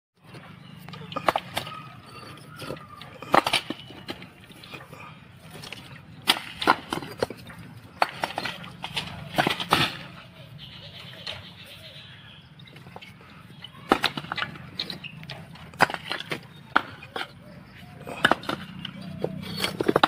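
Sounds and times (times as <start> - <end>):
bricks knocking and clinking: 0.8 - 4.8, 5.5 - 10.2, 13.8 - 20.0.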